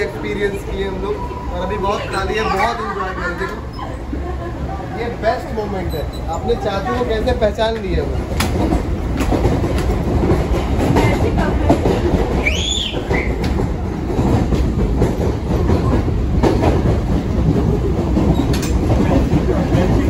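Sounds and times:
train rumble inside coach: 0.0 - 20.0
wheels knocking on rails: 7.7 - 20.0.

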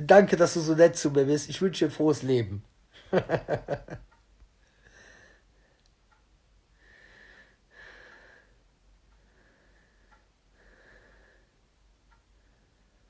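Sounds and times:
man's voice: 0.0 - 2.6.

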